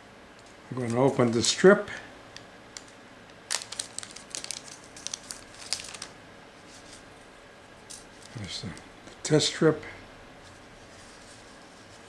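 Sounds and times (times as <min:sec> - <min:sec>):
plastic pouch crinkling: 0:02.8 - 0:07.1.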